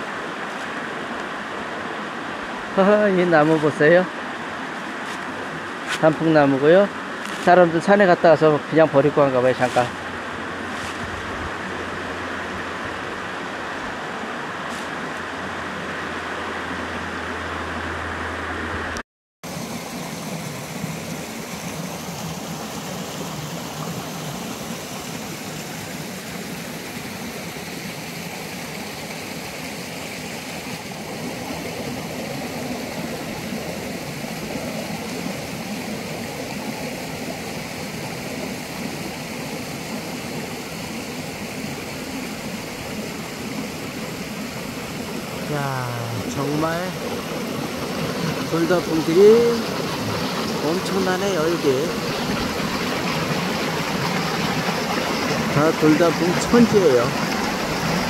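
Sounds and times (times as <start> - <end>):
stream flowing over rocks: 0.0 - 58.0.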